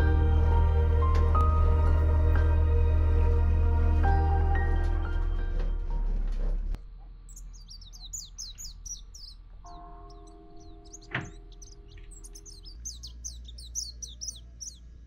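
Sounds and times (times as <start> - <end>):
small birds chirping: 7.0 - 15.0.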